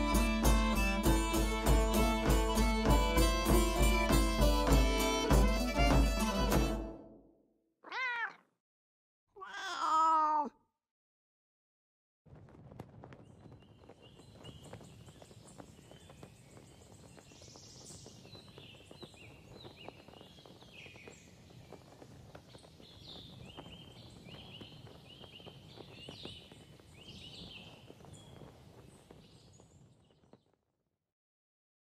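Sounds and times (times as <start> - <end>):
songbirds chirping: 13.4 - 30.4.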